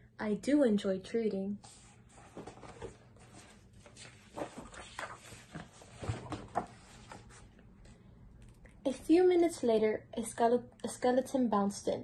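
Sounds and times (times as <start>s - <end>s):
book page rustling: 1.6s - 7.6s.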